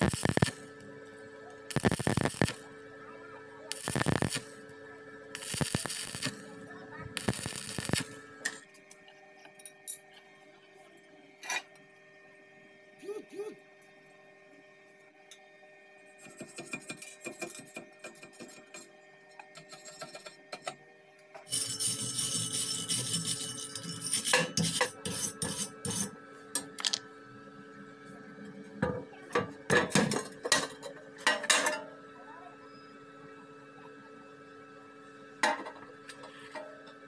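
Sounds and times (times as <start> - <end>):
wire brush scraping metal: 21.5 - 26.1.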